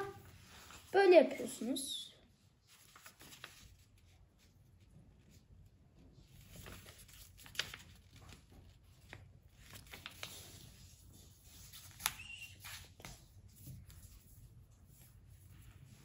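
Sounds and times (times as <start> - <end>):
paper rustling and folding: 0.0 - 1.7, 2.6 - 16.0
paper crinkle: 2.6 - 4.5, 6.3 - 15.7.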